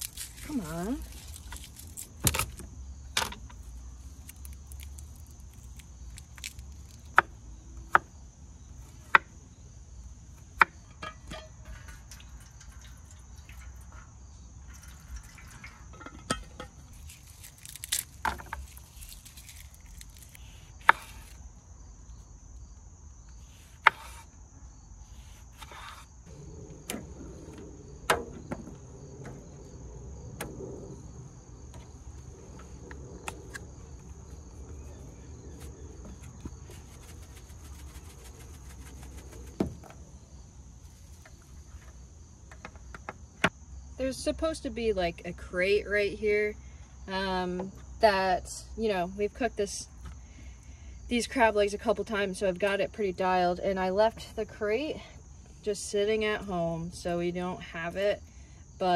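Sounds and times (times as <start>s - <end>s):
high insect drone: 0.0s - 51.7s
kitchen things set down: 14.8s - 17.0s.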